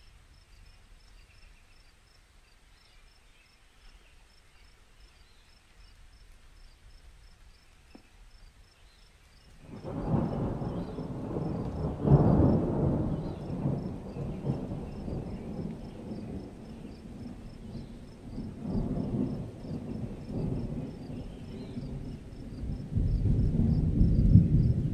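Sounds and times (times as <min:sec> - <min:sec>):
insects chirping: 0:00.0 - 0:24.9
thunder rumbling: 0:09.6 - 0:24.9.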